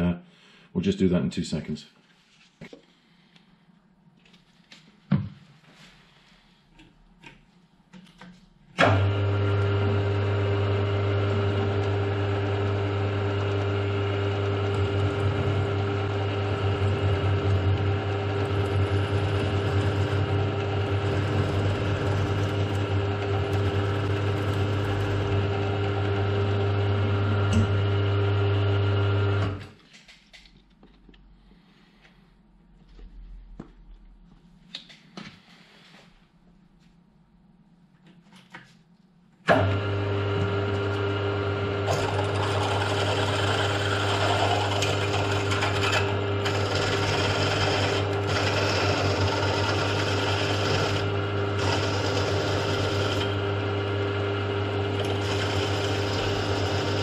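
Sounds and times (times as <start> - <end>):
milling machine spindle motor running: 8.8 - 29.6, 39.5 - 57.0.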